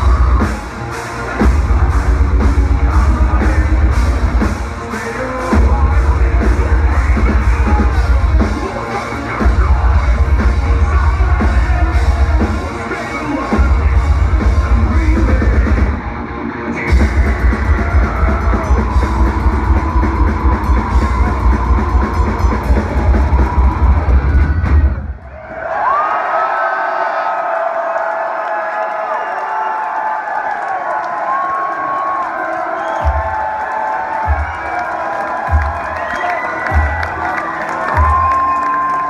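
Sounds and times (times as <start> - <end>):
metal band playing live: 0.0 - 25.1.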